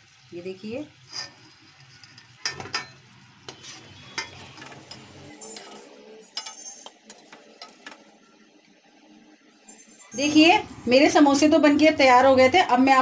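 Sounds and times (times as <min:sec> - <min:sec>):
metal spoon scraping a metal pan: 0:01.0 - 0:08.1.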